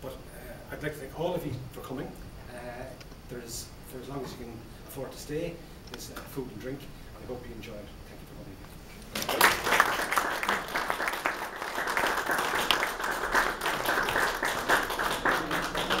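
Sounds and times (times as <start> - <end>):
audience applauding: 9.2 - 16.0.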